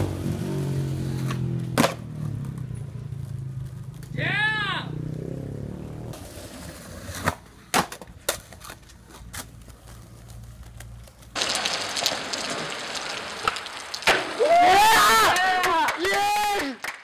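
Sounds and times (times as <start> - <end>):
skateboard wheels rolling: 1.0 - 4.1, 6.1 - 15.6
skateboard clacking on ground: 1.2 - 4.1, 6.2 - 14.4.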